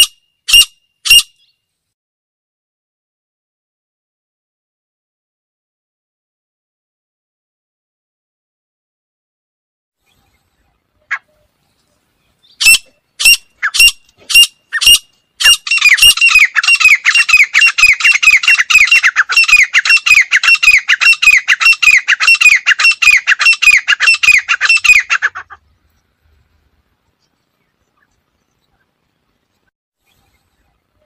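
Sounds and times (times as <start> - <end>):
francolin calling: 12.3 - 26.0.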